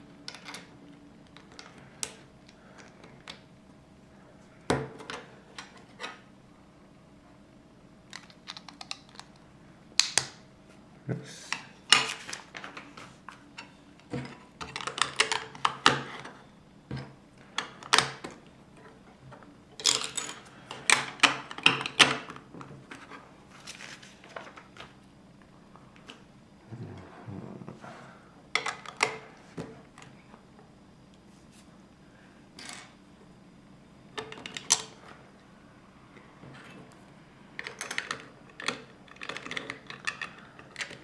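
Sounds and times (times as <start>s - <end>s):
plastic bricks clicking and clattering: 37.6s - 41.0s.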